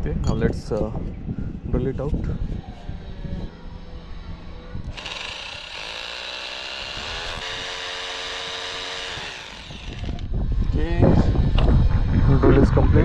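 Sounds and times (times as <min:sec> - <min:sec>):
hammer drill boring into masonry: 0:04.9 - 0:10.3.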